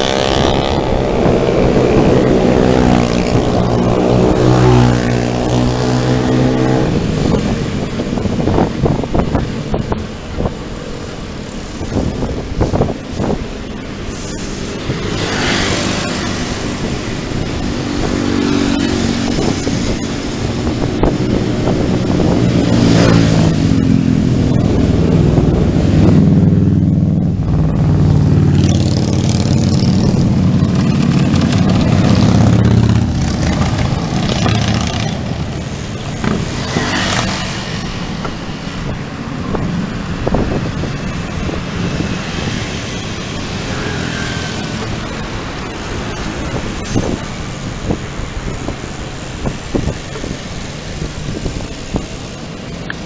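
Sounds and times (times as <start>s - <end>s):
wind noise on microphone: 0.0s - 53.0s
motorcycle engine passing: 14.8s - 38.2s.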